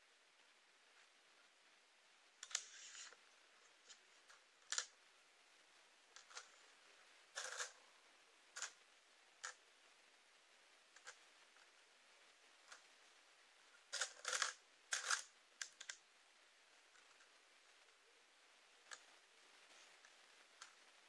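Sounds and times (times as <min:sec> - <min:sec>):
coin clicking on wooden table: 0:07.4 - 0:07.7, 0:14.0 - 0:15.9.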